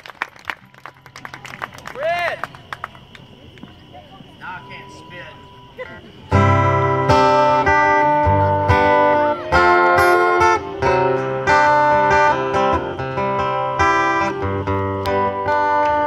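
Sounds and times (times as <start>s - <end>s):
acoustic guitar strumming: 4.4s - 16.0s.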